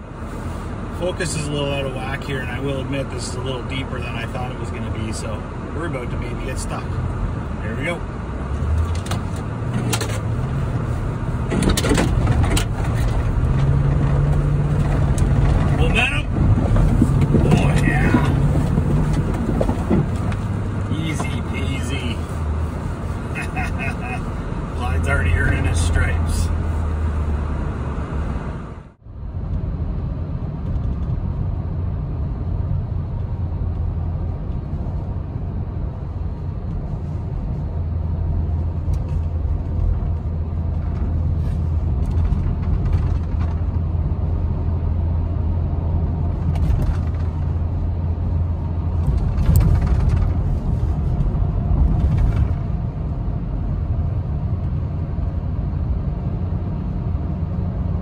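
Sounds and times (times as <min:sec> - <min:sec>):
in-cab engine drone: 0:00.0 - 0:58.0.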